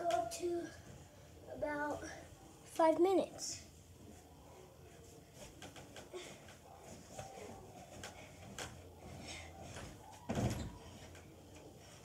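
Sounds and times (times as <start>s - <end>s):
faint clicks and knocks: 5.4s - 12.0s.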